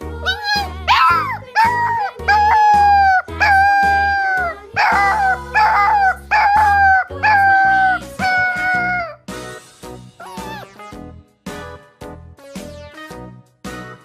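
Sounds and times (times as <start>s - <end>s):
background music: 0.0s - 14.0s
puppy howling: 0.9s - 9.2s, 10.2s - 10.7s.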